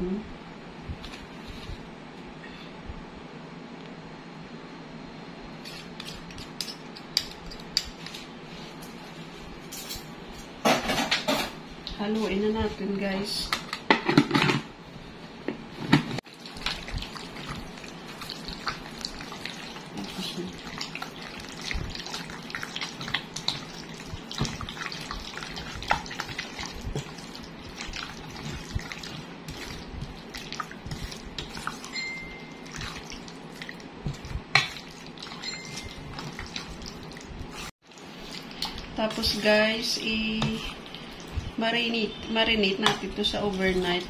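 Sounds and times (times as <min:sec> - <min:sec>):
hands squelching chicken in marinade: 0:16.3 - 0:39.5.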